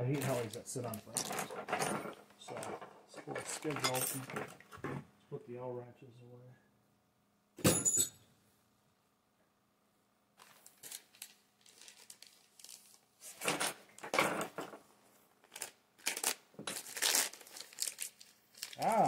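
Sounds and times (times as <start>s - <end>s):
plastic bag crinkling: 10.4s - 13.3s, 15.4s - 19.0s.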